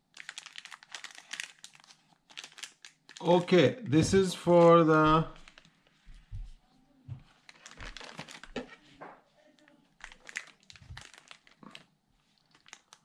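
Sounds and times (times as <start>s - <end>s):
plastic bag crinkling: 0.0s - 3.6s, 4.6s - 5.9s, 7.3s - 8.8s, 9.6s - 13.0s.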